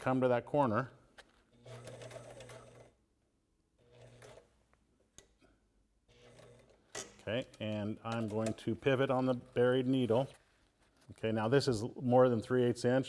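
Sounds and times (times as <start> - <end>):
sewing machine stitching: 1.5 - 3.0, 3.8 - 4.6, 6.1 - 8.6.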